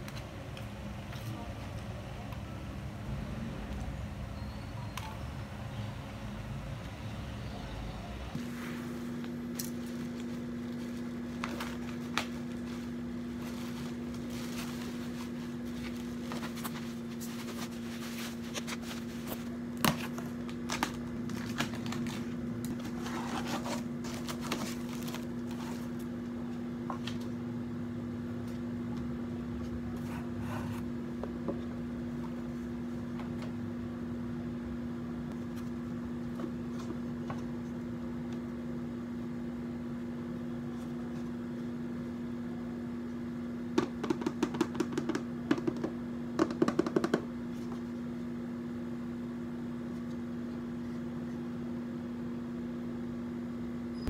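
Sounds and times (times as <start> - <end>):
fan motor electric hum: 0.0 - 54.0
foam and cardboard rustling: 8.4 - 26.1.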